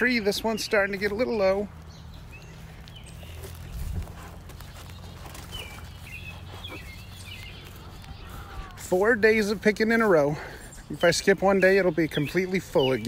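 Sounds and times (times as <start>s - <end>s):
footsteps walking: 0.0s - 13.0s
low microphone rumble: 1.6s - 9.0s.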